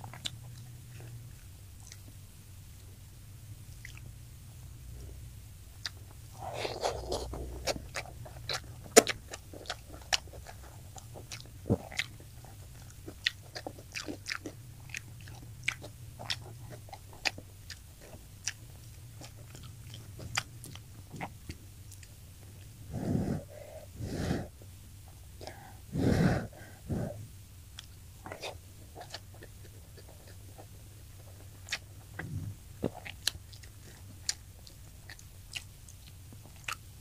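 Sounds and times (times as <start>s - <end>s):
crunchy chewing: 0.0s - 2.2s, 3.7s - 4.1s, 5.8s - 37.0s
faint low hum: 0.0s - 37.0s.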